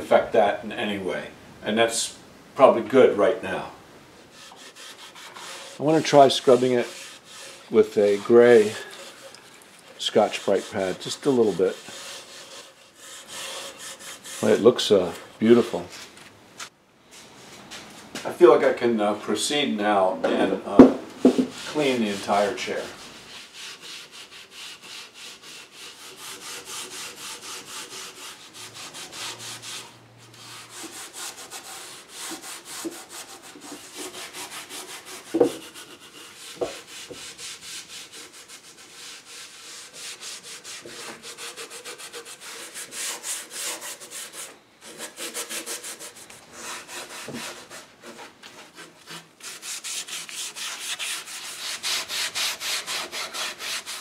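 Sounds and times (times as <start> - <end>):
scouring pad scrubbing wood: 4.3 - 14.9
sharp knocks: 20.8 - 21.6.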